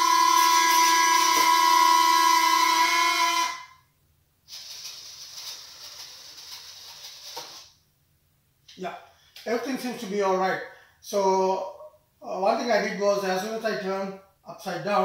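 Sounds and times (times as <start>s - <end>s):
faint steady hiss: 3.7s - 15.0s.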